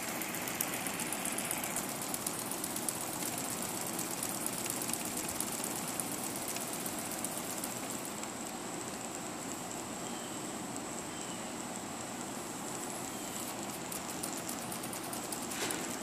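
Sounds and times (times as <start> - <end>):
toy steam engine ticking: 0.0 - 8.4, 13.5 - 15.5
thin steady high tone: 0.0 - 15.5.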